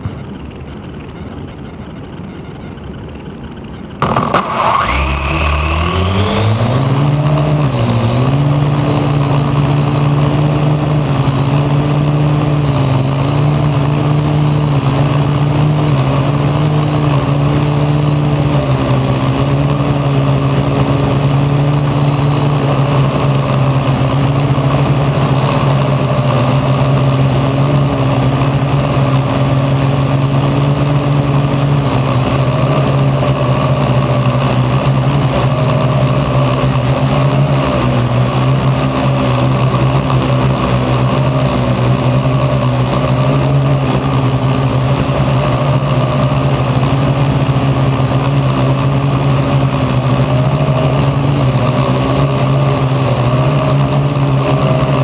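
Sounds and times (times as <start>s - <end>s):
drone motors humming: 0.0s - 55.0s.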